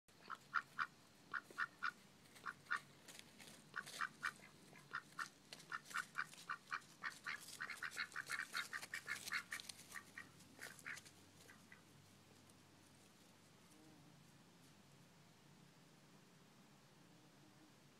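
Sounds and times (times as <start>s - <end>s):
duck quacking: 0.2s - 2.9s, 3.7s - 11.9s.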